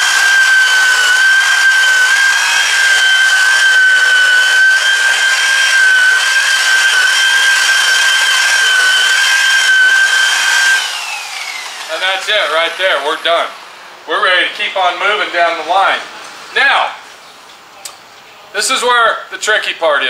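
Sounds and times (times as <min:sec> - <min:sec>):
rotary buffer motor whine: 0:00.0 - 0:13.9.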